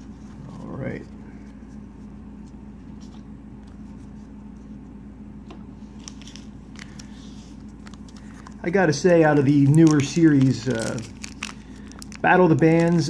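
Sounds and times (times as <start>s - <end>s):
steady low hum: 0.0s - 13.0s
cards rustling and tapping: 6.0s - 13.0s.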